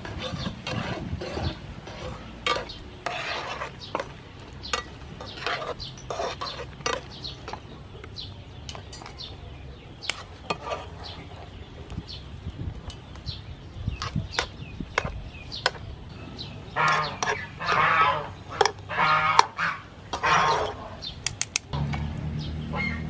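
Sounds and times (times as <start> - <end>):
utensils scraping a frying pan: 0.0 - 7.6, 10.1 - 11.6, 13.9 - 15.8, 16.4 - 21.1.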